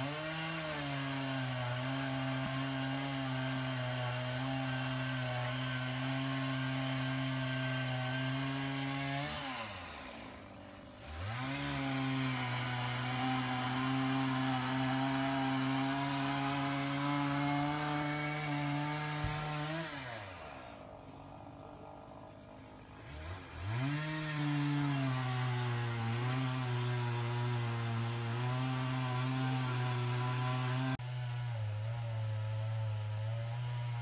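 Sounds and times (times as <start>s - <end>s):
motor drone: 4.4s - 24.1s.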